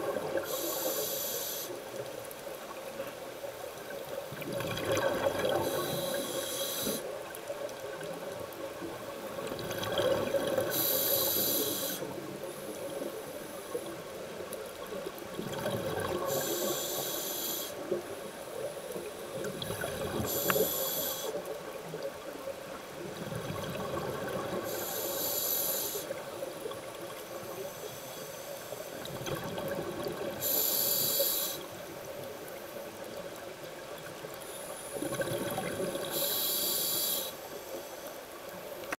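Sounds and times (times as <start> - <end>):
low underwater hum: 0.0 - 38.9
exhaled bubbles rushing: 4.3 - 5.6, 23.2 - 24.7, 35.0 - 36.1.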